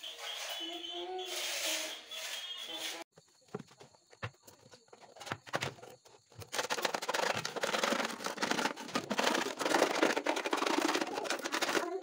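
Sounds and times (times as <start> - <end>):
point scraping plastic: 4.8 - 12.0.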